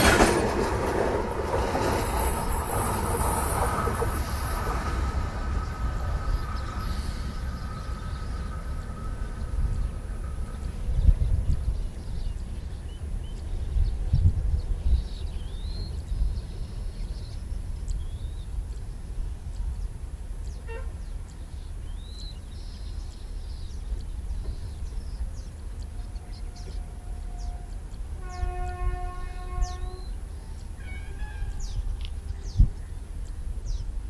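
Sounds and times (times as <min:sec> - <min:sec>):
steady low rumble: 0:00.0 - 0:28.3, 0:29.1 - 0:34.0
distant train horn: 0:20.5 - 0:21.1, 0:26.0 - 0:32.6.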